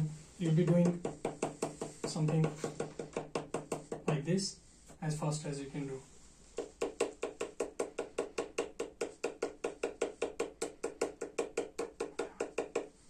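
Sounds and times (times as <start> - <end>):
pen tapping on paper: 0.8 - 4.2.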